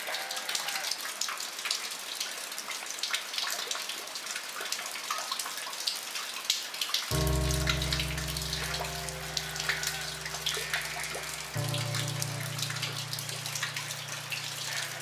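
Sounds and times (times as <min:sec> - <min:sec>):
steady rain falling: 0:00.0 - 0:15.0
low sustained music notes: 0:07.1 - 0:15.0
sharp raindrop hits: 0:07.1 - 0:15.0.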